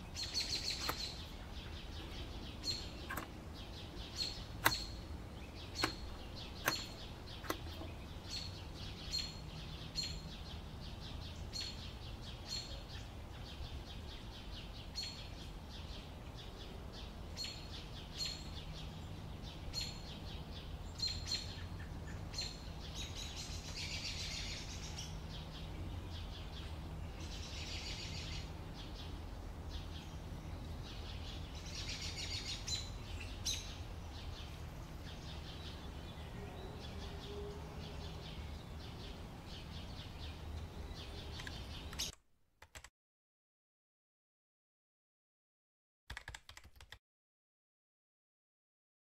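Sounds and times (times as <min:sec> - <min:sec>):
small birds chirping: 0:00.0 - 0:42.2.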